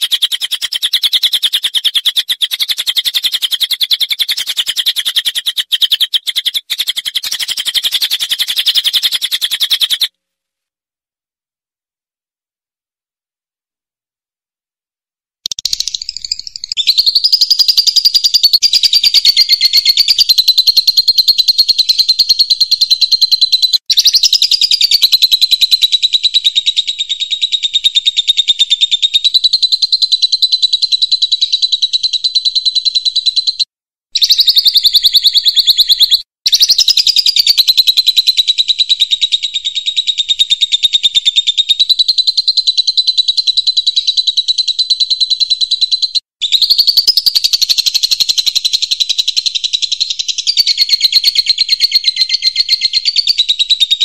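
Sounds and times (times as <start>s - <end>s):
songbird trilling: 0.0s - 10.1s, 15.5s - 25.8s.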